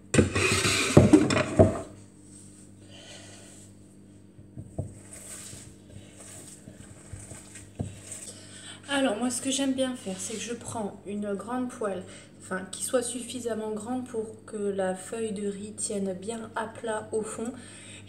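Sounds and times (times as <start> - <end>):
hands mixing food in bowl: 4.6 - 10.8.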